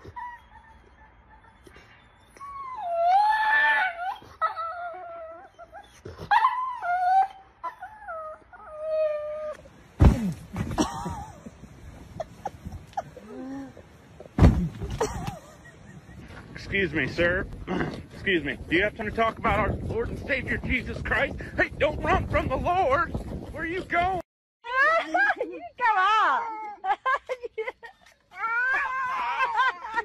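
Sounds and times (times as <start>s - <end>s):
dog wailing and whining: 0.0s - 9.6s
loud knocks and thuds: 10.0s - 10.8s, 14.4s - 15.0s.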